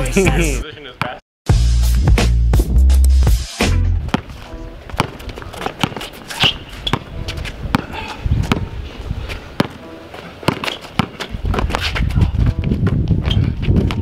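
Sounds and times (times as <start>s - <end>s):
basketball bouncing on asphalt: 4.0s - 14.0s
sneaker footsteps: 4.0s - 14.0s.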